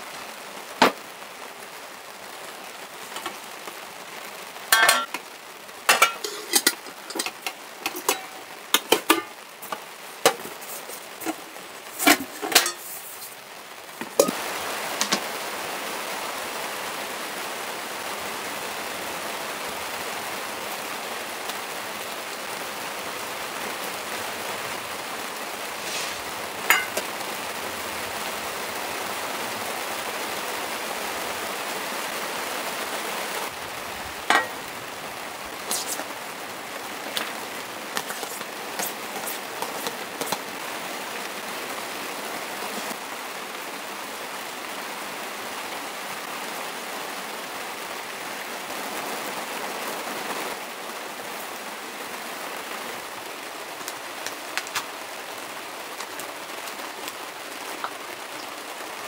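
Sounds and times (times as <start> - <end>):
rain on a tent: 0.0 - 59.0
metal pans and lids clattering: 3.1 - 3.4, 4.7 - 13.4, 14.0 - 14.4, 25.9 - 27.1, 34.2 - 34.7, 35.6 - 36.1, 37.0 - 40.5.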